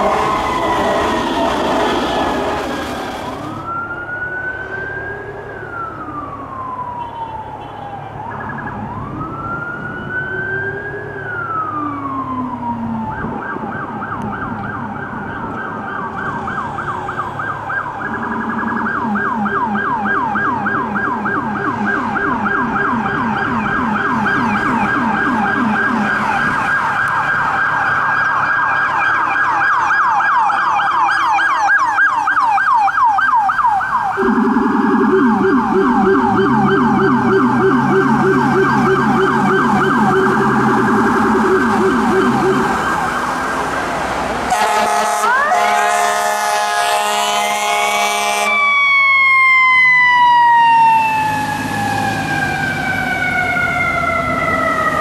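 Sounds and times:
electronic siren wailing and yelping: 0.0 - 4.7, 17.4 - 43.6, 44.5 - 55.0
low rumbler siren tone: 0.0 - 55.0.

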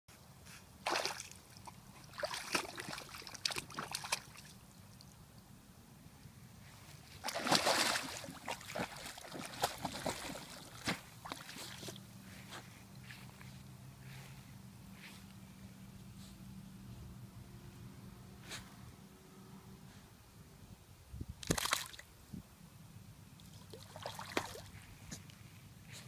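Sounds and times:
dog splashing through water: 0.8 - 4.6, 7.1 - 12.1, 23.5 - 24.8.

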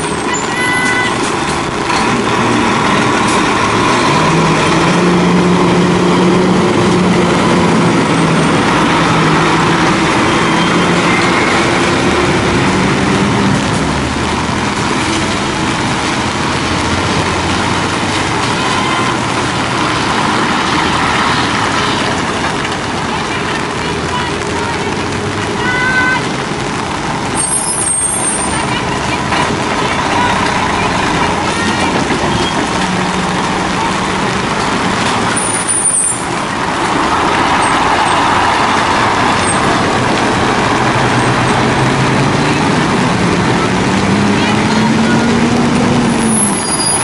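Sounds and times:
truck engines humming: 0.0 - 47.0
tyres hissing on wet road: 0.0 - 47.0.

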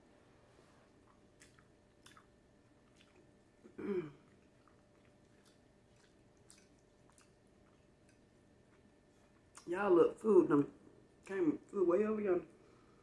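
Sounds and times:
chewing clicks: 1.1 - 3.3, 4.3 - 9.7
person humming: 3.8 - 4.2.

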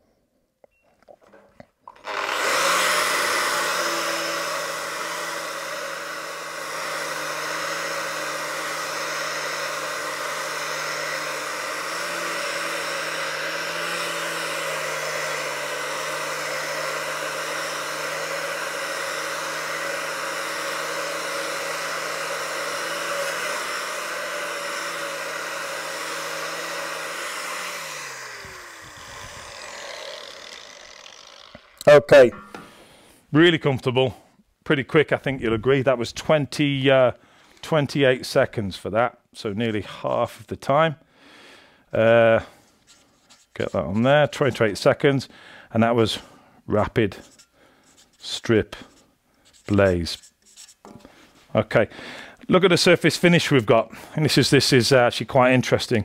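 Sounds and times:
disc scouring rust and paint: 1.9 - 31.9, 42.5 - 45.1, 46.8 - 51.8
angle grinder motor whine: 1.9 - 32.7
grinder winding down: 1.9 - 32.7.

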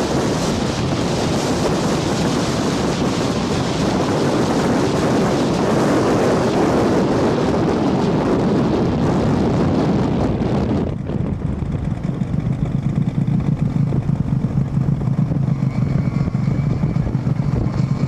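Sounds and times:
snowmobile roaring: 0.0 - 18.0
wind rushing over microphone: 0.0 - 18.0.

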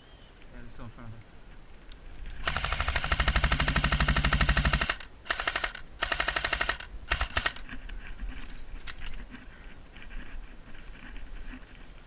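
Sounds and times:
airsoft gun firing bursts: 2.4 - 7.6.

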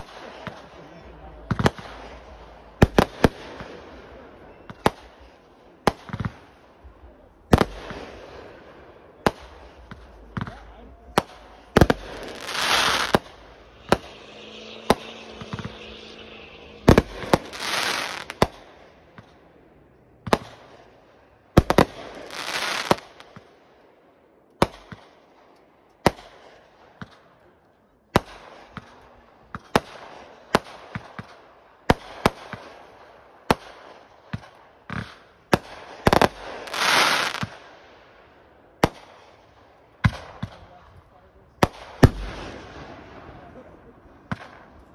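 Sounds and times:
fireworks bangs: 0.0 - 23.6, 28.1 - 44.9
rushes of noise: 6.4 - 19.9.

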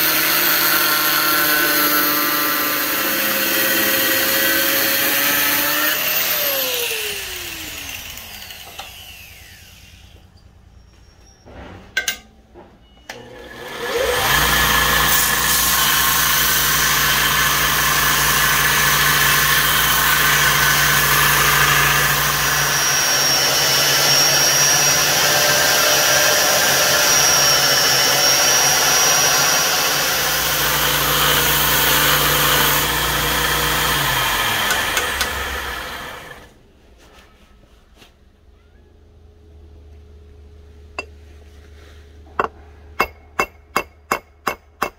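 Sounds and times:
belt grinder motor: 0.0 - 10.2, 13.2 - 36.5.

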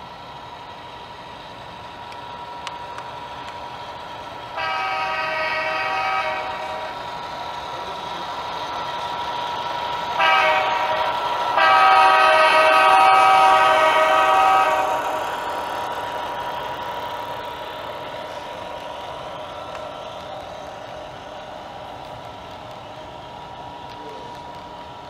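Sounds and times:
model train running hum: 0.0 - 25.0
model train horn blasts: 4.6 - 7.0, 10.2 - 15.3.

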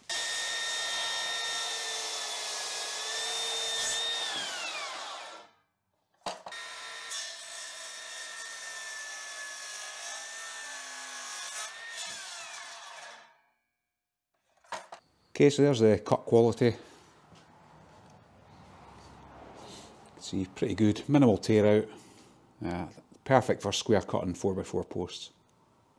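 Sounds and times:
circular saw cutting wood: 0.0 - 5.6, 6.5 - 13.4.

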